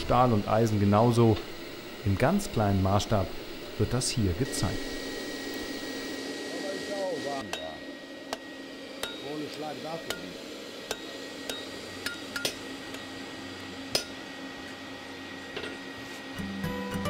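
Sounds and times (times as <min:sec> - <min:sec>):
hammer striking iron on anvil: 0:07.5 - 0:09.3, 0:10.0 - 0:10.3, 0:10.9 - 0:12.6, 0:13.9 - 0:14.2.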